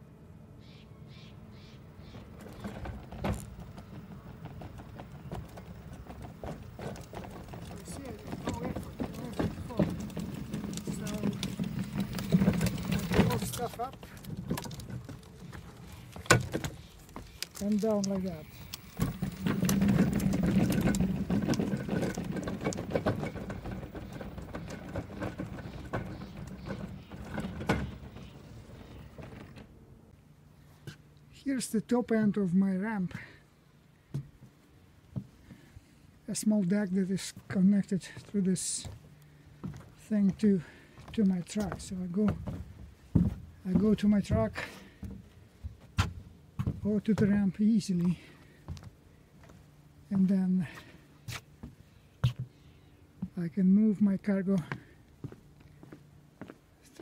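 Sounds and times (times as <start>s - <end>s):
wheels clicking over wooden boards: 2.0s - 29.8s, 39.6s - 48.9s.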